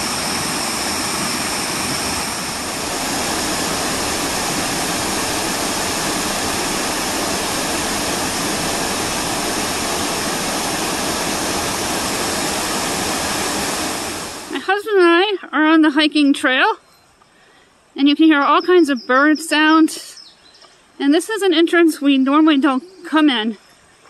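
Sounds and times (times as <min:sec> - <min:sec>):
waterfall rushing over rocks: 0:00.0 - 0:14.7.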